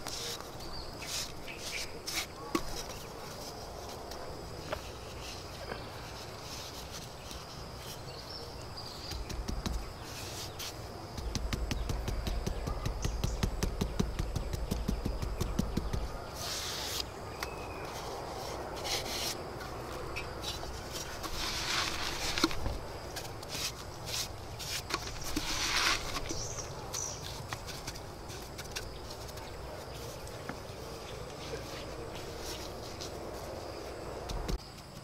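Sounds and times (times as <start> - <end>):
bricks tapped into mortar: 11.2 - 16.2
trowel scraping mortar: 20.5 - 28.9.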